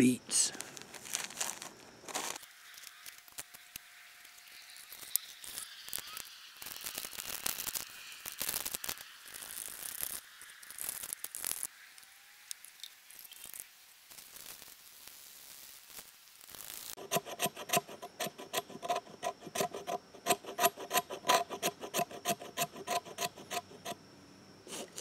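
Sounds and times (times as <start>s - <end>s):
packaging rustling and crinkling: 0.6s - 2.5s.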